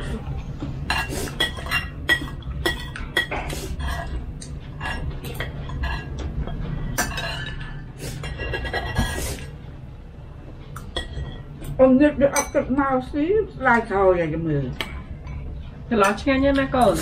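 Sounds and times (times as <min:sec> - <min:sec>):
low steady hum: 0:00.0 - 0:17.0
spoons clinking on plates: 0:00.9 - 0:09.2, 0:10.8 - 0:12.7.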